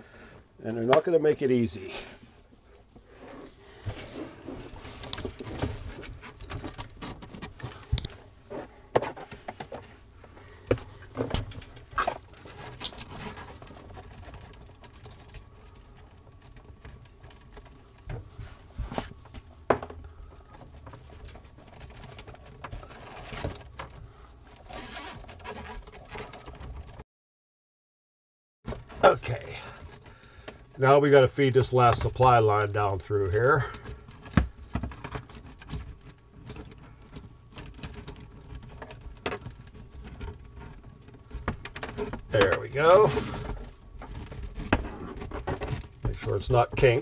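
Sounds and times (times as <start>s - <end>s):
hoses scraping: 24.6s - 26.3s, 42.3s - 43.6s.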